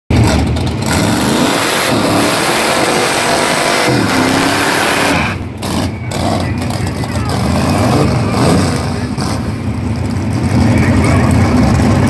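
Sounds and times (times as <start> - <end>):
engine revving hard: 0.1 - 9.7.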